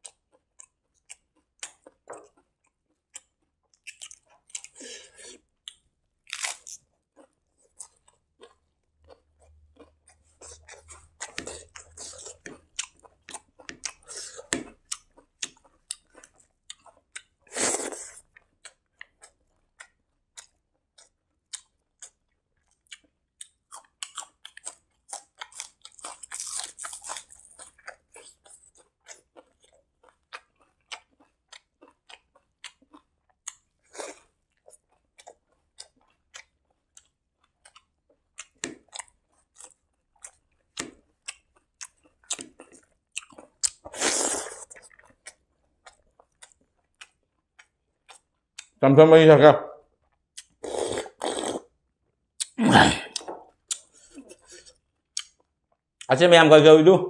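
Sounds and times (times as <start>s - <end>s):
chewing crunchy food: 0.0s - 48.8s, 49.8s - 51.8s, 52.4s - 56.1s
wet mouth clicks: 50.4s - 51.7s, 52.4s - 55.4s.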